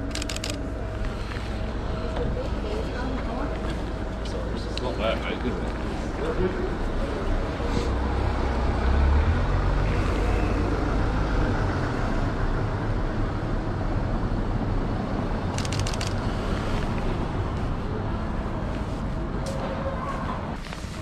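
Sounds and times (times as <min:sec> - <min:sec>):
street noise: 0:00.0 - 0:21.0
camera shutter clicks: 0:00.1 - 0:00.6, 0:15.6 - 0:16.2
car driving past: 0:07.7 - 0:13.4.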